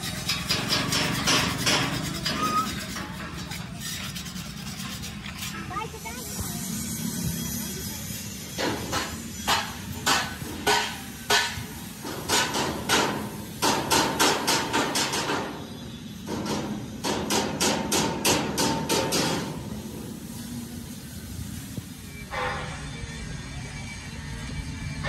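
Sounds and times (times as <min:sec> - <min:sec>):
hammer striking steel: 0:00.0 - 0:02.6, 0:08.6 - 0:15.6, 0:16.2 - 0:19.8.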